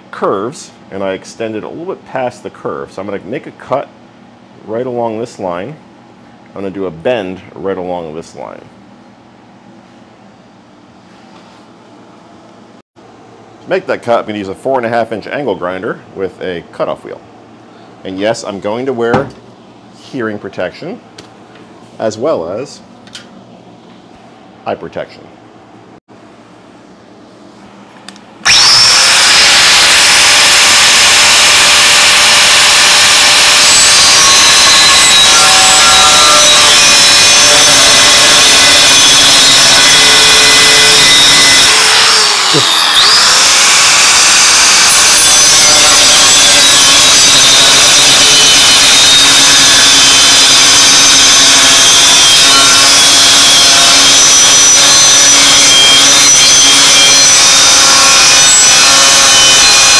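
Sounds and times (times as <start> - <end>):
angle grinder cutting steel: 28.4 - 59.9.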